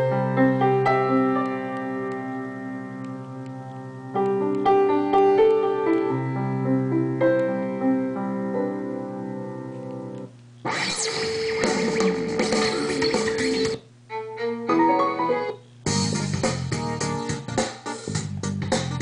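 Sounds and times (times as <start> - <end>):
solo piano through loudspeaker: 0.0 - 10.1.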